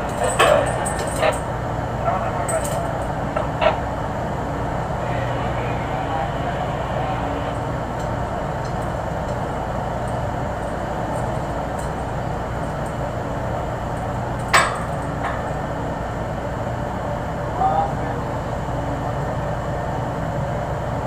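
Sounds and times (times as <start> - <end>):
low machinery hum and rushing: 0.0 - 21.0.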